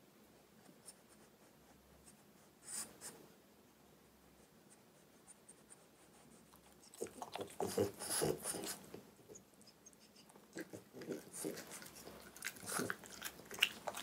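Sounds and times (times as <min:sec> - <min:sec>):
dog chewing with mouth smacks: 0:06.5 - 0:09.0, 0:10.0 - 0:14.0.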